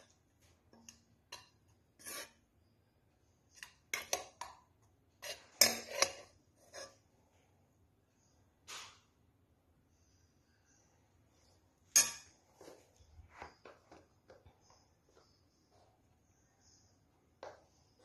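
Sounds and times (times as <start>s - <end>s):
spoon scraping a cooking pot: 0.0s - 2.6s, 3.5s - 7.1s, 11.9s - 18.0s.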